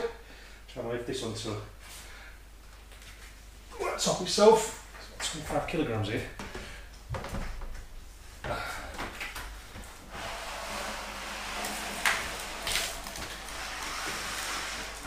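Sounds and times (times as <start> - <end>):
panel scraping across plastic sheet: 10.1 - 15.0.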